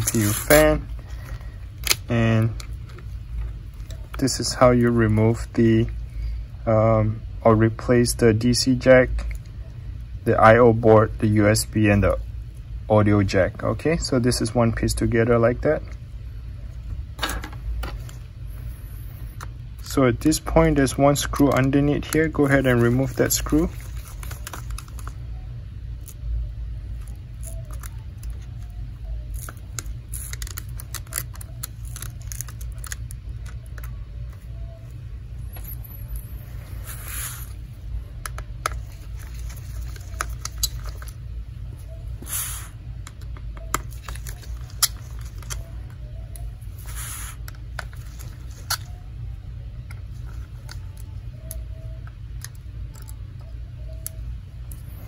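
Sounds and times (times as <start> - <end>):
gloved hands rustling: 0.0 - 2.0, 21.0 - 25.2
steady low hum: 0.0 - 55.0.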